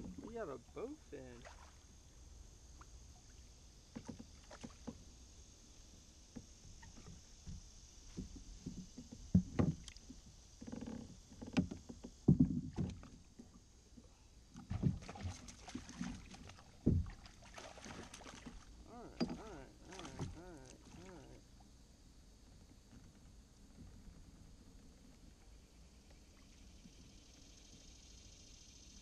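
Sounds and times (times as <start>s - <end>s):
knocks and thumps against kayak hull: 3.9s - 5.1s, 6.3s - 13.6s, 14.5s - 21.2s.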